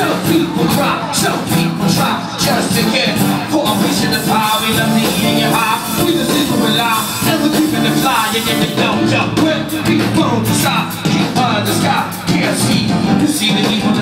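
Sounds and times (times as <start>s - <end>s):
live hip-hop band playing: 0.0s - 14.0s
person singing: 0.0s - 14.0s.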